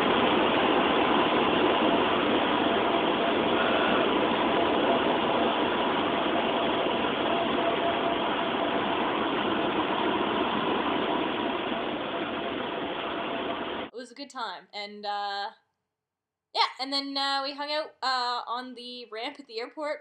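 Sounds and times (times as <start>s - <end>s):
small plane engine drone: 0.0s - 13.9s.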